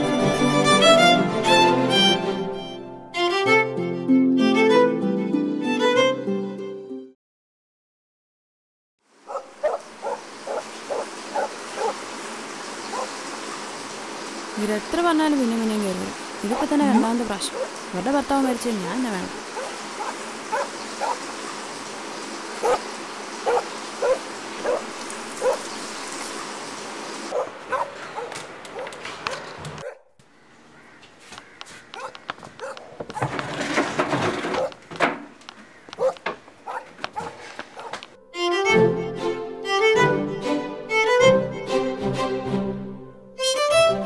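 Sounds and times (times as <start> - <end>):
violin music: 0.0 - 7.0, 38.2 - 44.0
dog yipping barks: 9.3 - 12.0, 12.9 - 13.1, 16.9 - 17.8, 19.6 - 21.2, 22.6 - 22.8, 23.4 - 25.6, 27.3 - 30.1, 31.9 - 33.2, 34.6 - 34.8, 35.9 - 38.0.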